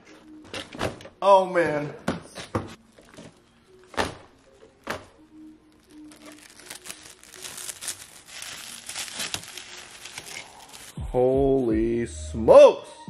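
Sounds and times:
plastic wrap crinkling: 5.6s - 11.0s.

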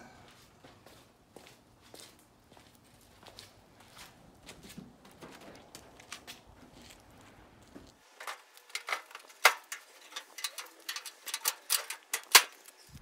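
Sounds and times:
footsteps: 0.0s - 13.0s
metal clicks and knocks: 8.2s - 12.8s.

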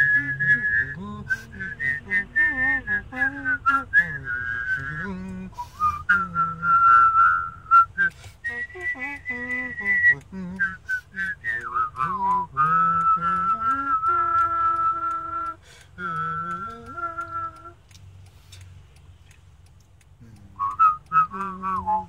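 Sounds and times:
person whistling a melody: 0.0s - 17.8s, 20.5s - 22.0s
short clicks: 7.9s - 22.0s
person humming a lower line: 8.5s - 17.8s.

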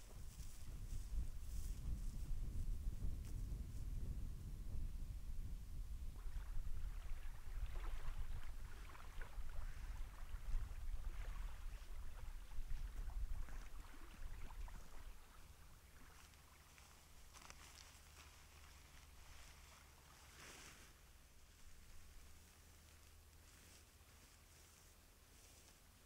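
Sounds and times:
small waves lapping at shore: 6.2s - 21.0s.

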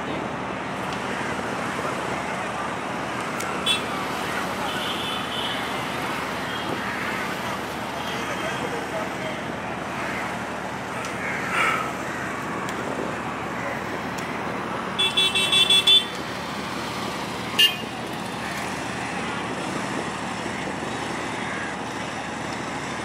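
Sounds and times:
crowd noise: 0.0s - 23.0s
engines: 0.0s - 23.0s
vehicle horn toots: 3.7s - 3.9s, 15.0s - 16.1s, 17.6s - 17.9s.

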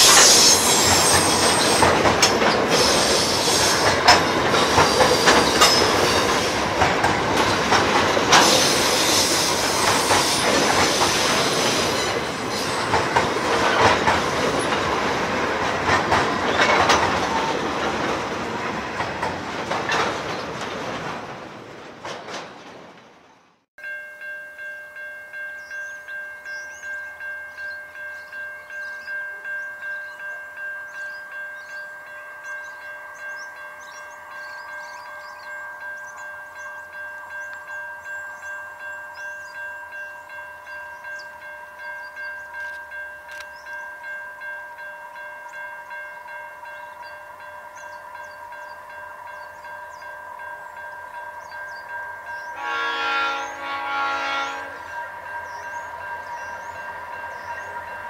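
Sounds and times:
level crossing warning bell: 0.0s - 21.1s, 23.8s - 58.0s
small birds chirping: 54.8s - 57.9s.

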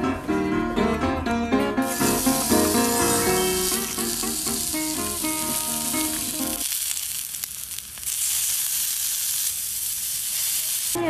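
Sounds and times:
background music: 0.0s - 6.6s
meat sizzling on a griddle: 1.8s - 11.0s.

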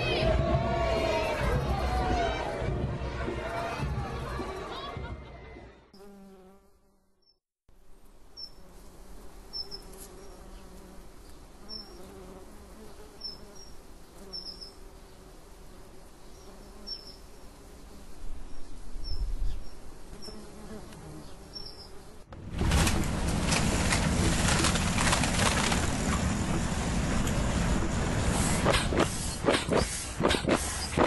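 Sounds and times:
buzzing insect drone: 8.3s - 18.2s.

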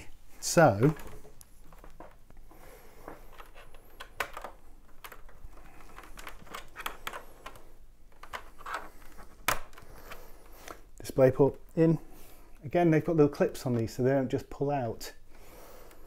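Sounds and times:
cable connector clicks and scrapes: 3.1s - 10.9s.

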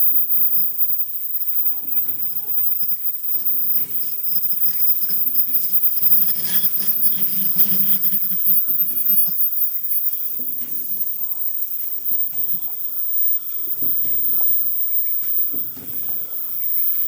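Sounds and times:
steady high hiss: 0.0s - 17.0s.

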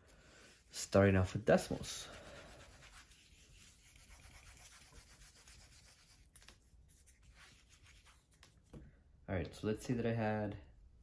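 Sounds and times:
eraser rubbing on whiteboard: 2.2s - 8.5s.

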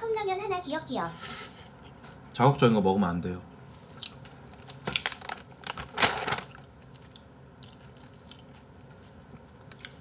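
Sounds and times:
paper tissues rustling: 4.6s - 6.7s.

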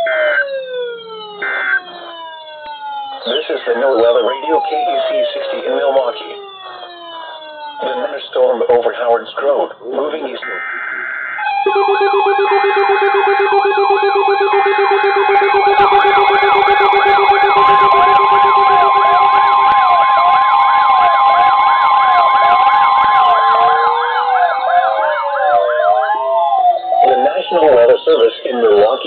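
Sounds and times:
siren-like warbling alert tones: 0.0s - 8.4s, 10.3s - 29.0s
steady attention tone: 0.0s - 8.4s, 10.1s - 29.0s
high data burst: 10.4s - 20.0s
pulsing low beep: 10.4s - 20.4s
zig-zag electronic sweeps: 10.4s - 20.9s.

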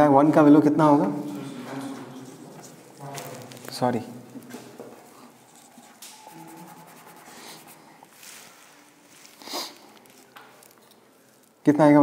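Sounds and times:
faint scratching of writing: 4.4s - 11.6s.

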